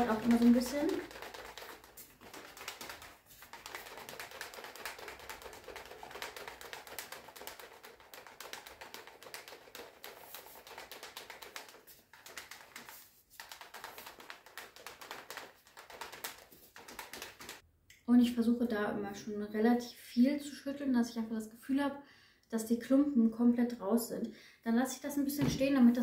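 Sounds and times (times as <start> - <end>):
plastic shaker cup clattering: 0.0 - 17.6.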